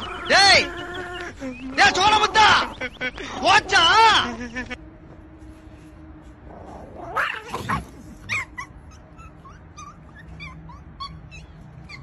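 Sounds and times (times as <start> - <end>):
dog whining and yipping: 7.0 - 12.0.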